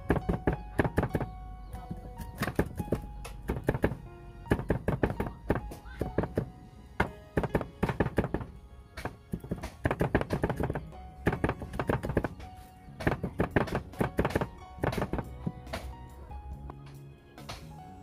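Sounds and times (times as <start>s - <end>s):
cleaver chopping on wooden board: 0.0s - 16.0s
background music: 0.0s - 18.0s.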